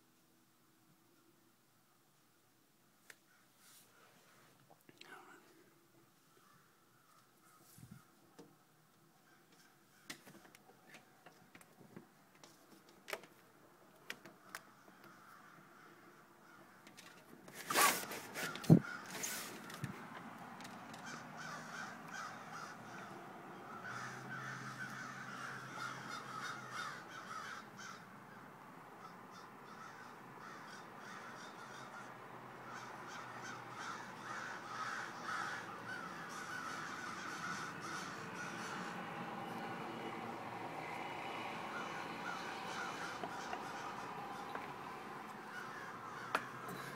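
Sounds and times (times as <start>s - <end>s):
crows cawing: 3.3s - 3.6s, 6.2s - 8.3s, 9.2s - 10.6s, 14.2s - 17.2s, 18.3s - 19.8s, 20.9s - 46.9s
loud scrape: 17.5s - 19.8s.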